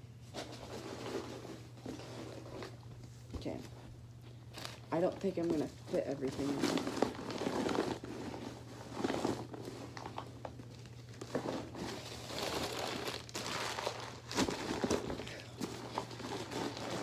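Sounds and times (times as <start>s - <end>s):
bin liner and papers crinkling: 4.5s - 17.0s.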